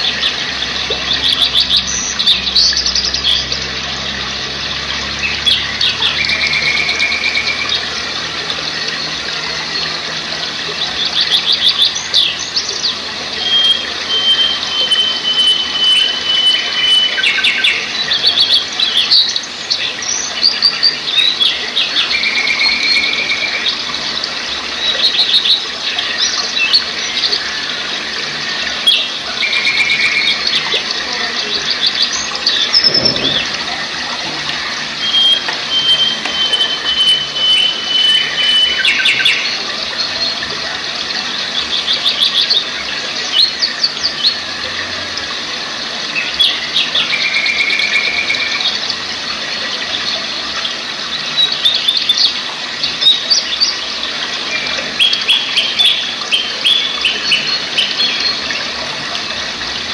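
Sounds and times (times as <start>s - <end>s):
songbirds chirping and trilling: 0.0s - 59.9s
stream rushing over boulders: 0.0s - 59.9s
long high bird whistle: 35.0s - 39.5s.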